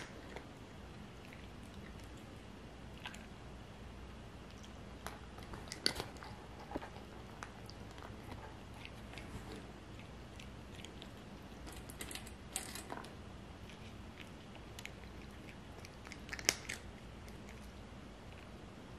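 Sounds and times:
cat crunching dry food: 0:04.4 - 0:18.6.

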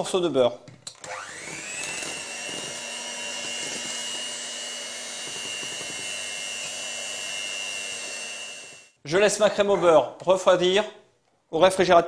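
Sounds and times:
electric hand mixer whining: 0:01.0 - 0:09.0.

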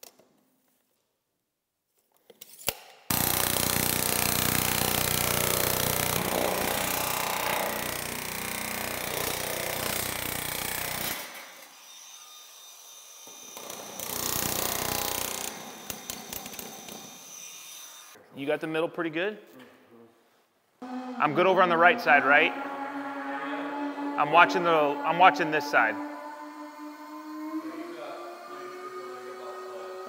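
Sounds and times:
cordless drill through steel panels: 0:03.1 - 0:18.2.

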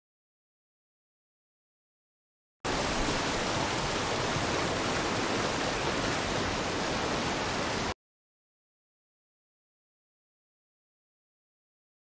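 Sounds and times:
stream rushing over rocks: 0:02.7 - 0:08.0.

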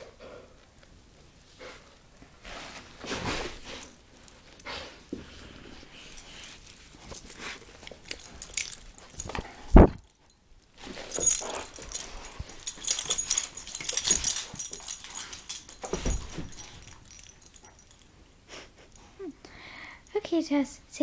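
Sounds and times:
dog scuffling with sock: 0:02.3 - 0:04.0
light clicking and rustling: 0:03.3 - 0:18.1.

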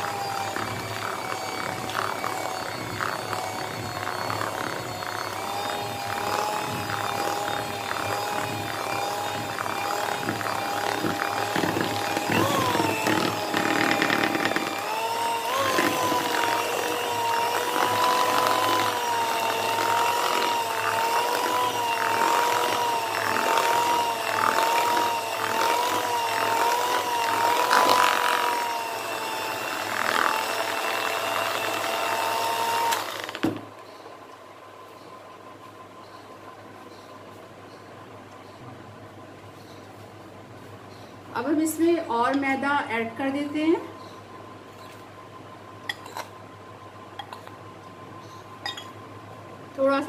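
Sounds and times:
electric hand mixer whine: 0:00.0 - 0:33.8.

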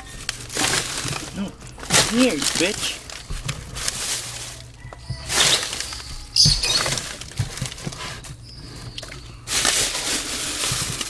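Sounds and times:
rustling and scrabbling: 0:00.0 - 0:11.0
mouse squeaking: 0:04.8 - 0:07.0.

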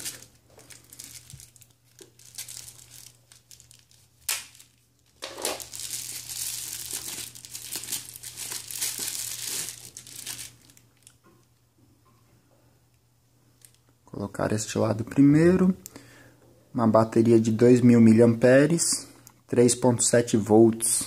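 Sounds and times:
bubble wrap crinkling: 0:00.0 - 0:11.2.

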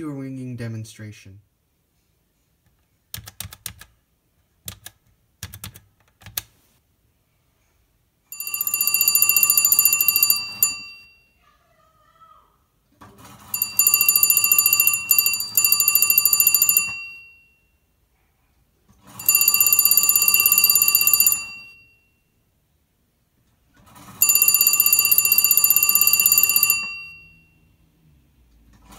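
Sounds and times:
telephone bells ringing: 0:08.3 - 0:11.4, 0:13.2 - 0:17.8, 0:19.0 - 0:22.3, 0:23.9 - 0:27.7.

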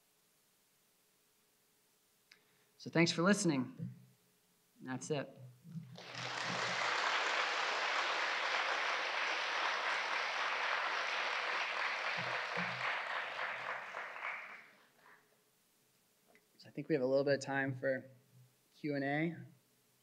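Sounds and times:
audience applauding: 0:06.0 - 0:14.8.

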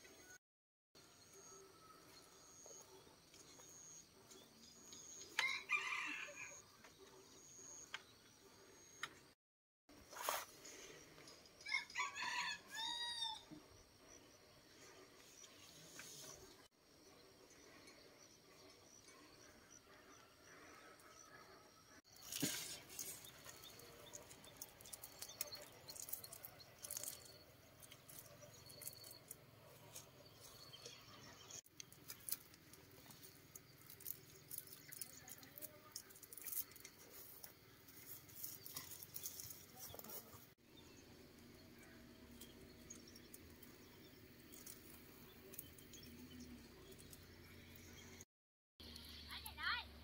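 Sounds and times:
plant leaves rustling and snapping: 0:22.2 - 0:29.3, 0:31.7 - 0:40.3.

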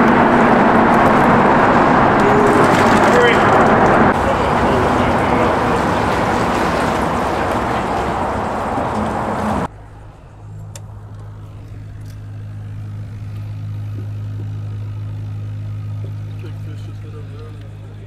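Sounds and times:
aerator bubbling: 0:00.0 - 0:09.7
boat motor and water rush: 0:00.0 - 0:18.0
low motor hum: 0:00.0 - 0:18.0.

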